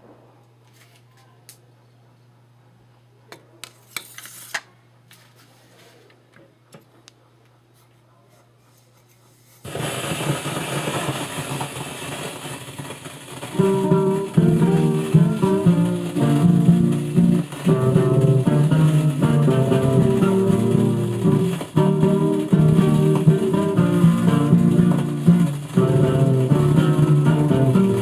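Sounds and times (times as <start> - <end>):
vinyl surface noise: 3.6 - 28.0
guitar music from record: 13.4 - 28.0.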